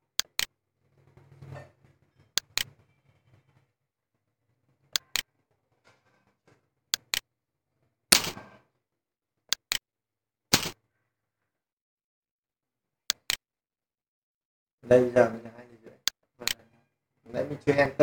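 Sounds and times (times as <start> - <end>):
computer mouse button clicking: 2.4 - 2.7, 5.0 - 5.2, 13.1 - 13.4.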